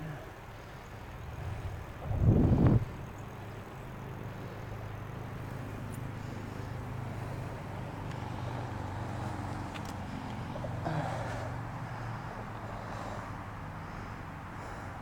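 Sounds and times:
bike tyres humming on asphalt: 0.0 - 15.0
faint ticks: 8.0 - 8.3, 9.2 - 10.4.

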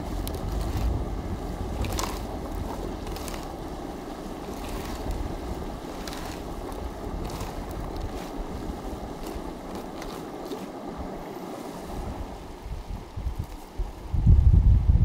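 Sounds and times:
low rumble: 0.0 - 11.2
rushing outdoor noise: 0.0 - 15.0.

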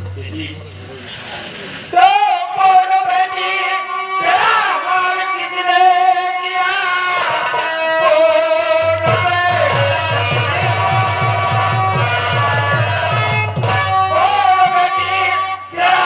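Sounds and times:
man singing long wavering notes: 2.0 - 13.2.

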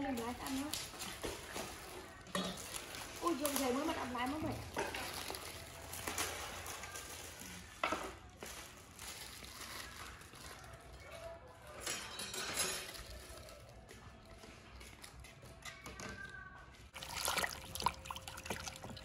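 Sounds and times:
vegetables rustling in plastic bowls: 0.0 - 11.2, 12.8 - 13.8.

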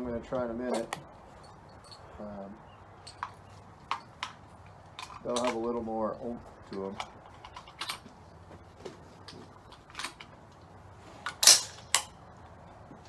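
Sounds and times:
cartridges clinking: 11.3 - 12.2.

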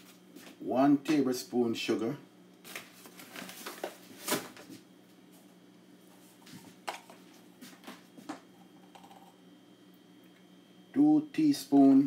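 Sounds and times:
low steady hum: 0.0 - 12.0
kitchen items knocking and clicking: 8.8 - 9.3.

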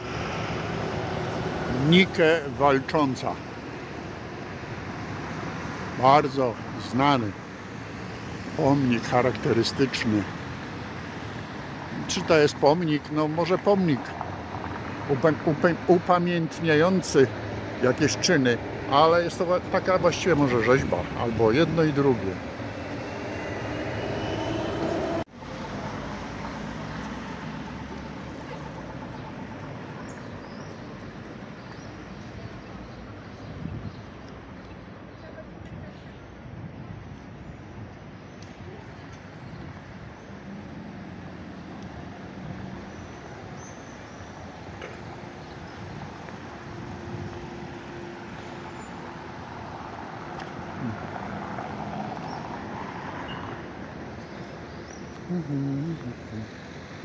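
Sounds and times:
passing cars: 0.0 - 57.0
traffic noise: 0.0 - 57.0
faint engine hum: 55.1 - 56.6.

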